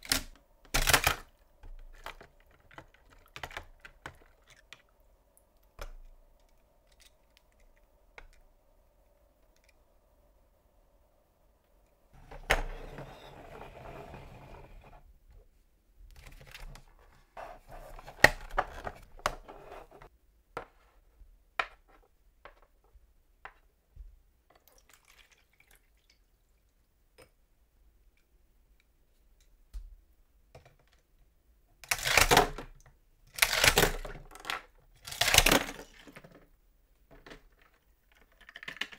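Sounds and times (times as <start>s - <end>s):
plastic toy ladder clicking and rattling: 0.0s - 4.8s, 31.8s - 36.5s, 37.1s - 38.9s
toy car rolling along plastic ladder: 12.3s - 15.0s.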